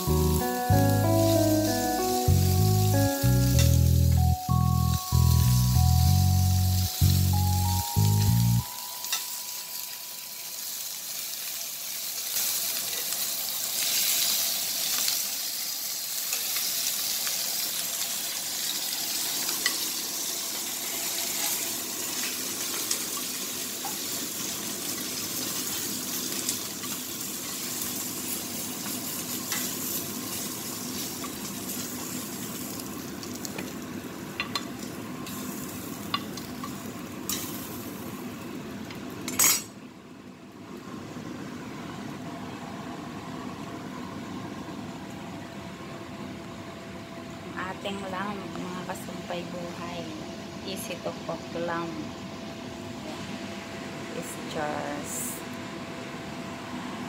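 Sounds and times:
lamb chops sizzling in grill pan: 0.0 - 39.6.

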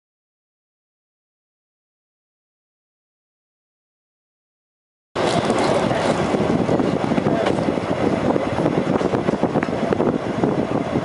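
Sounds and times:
train wheels rumbling on track: 5.2 - 11.0.

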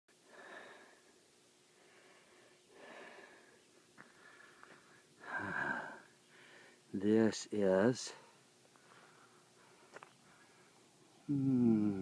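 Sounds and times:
soft breathing close to microphone: 8.1 - 11.0.

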